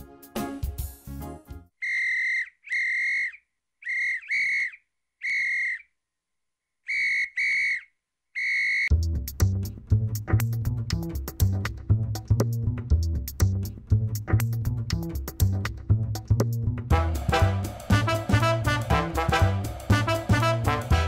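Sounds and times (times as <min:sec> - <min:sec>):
background music: 0:00.0 - 0:01.7, 0:08.9 - 0:21.0
whistle blasts: 0:01.8 - 0:06.0, 0:06.8 - 0:08.9.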